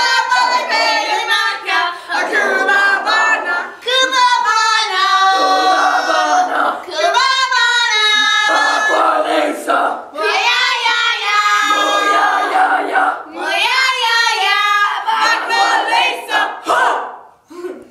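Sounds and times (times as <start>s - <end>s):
girls singing loudly: 0.0s - 17.2s.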